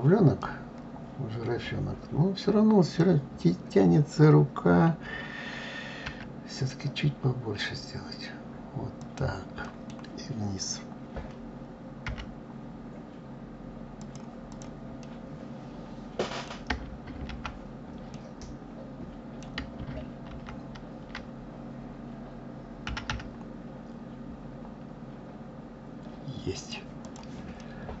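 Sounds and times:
steady low hum: 0:00.0 - 0:28.0
keyboard and mouse clicks: 0:09.0 - 0:10.2, 0:12.0 - 0:12.3, 0:14.0 - 0:15.2, 0:19.4 - 0:21.3, 0:22.8 - 0:23.5, 0:27.0 - 0:27.7.

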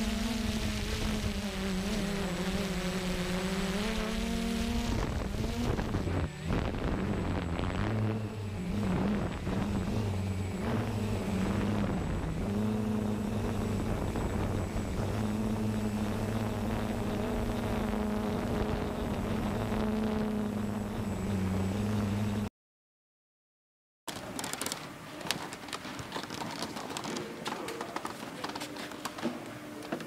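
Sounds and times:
drone propellers humming: 0:00.0 - 0:22.5.

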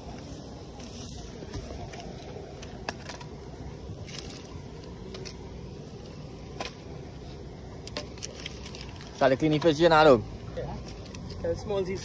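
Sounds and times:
twig fire crackling: 0:00.0 - 0:12.0
sticks snapping and popping: 0:07.8 - 0:09.7.

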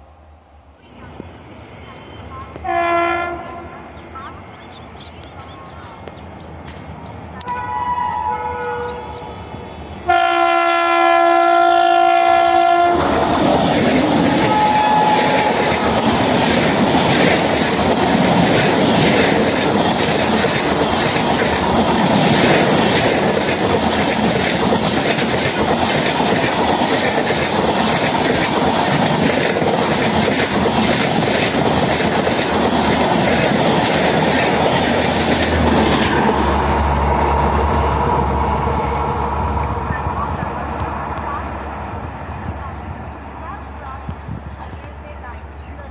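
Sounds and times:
train passing rush: 0:00.0 - 0:45.9
locomotive horn blast: 0:02.6 - 0:03.9, 0:07.4 - 0:13.2, 0:14.3 - 0:16.2
wheels clacking over rail joints: 0:12.9 - 0:38.2.

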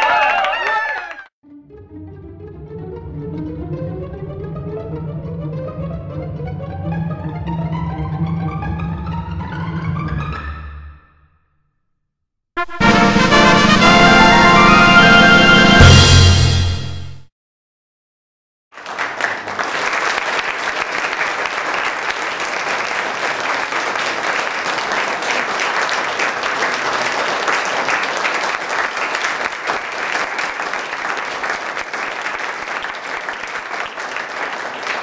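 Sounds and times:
crowd applauding: 0:00.0 - 0:01.3, 0:18.8 - 0:35.0.

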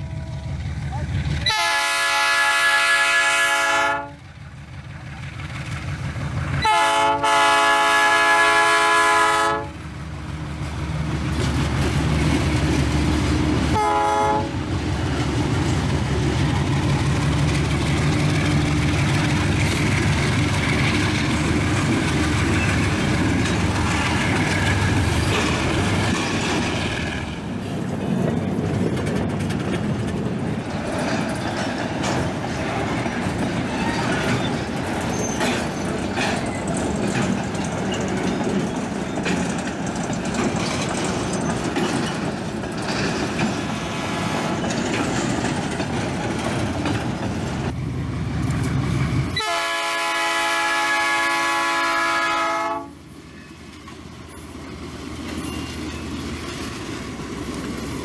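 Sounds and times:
locomotive engines running past: 0:00.0 - 0:58.0
train wagons rolling by: 0:00.0 - 0:58.0
locomotive air horn blasts: 0:01.4 - 0:04.2, 0:06.6 - 0:09.8, 0:13.7 - 0:14.6, 0:49.4 - 0:53.0.

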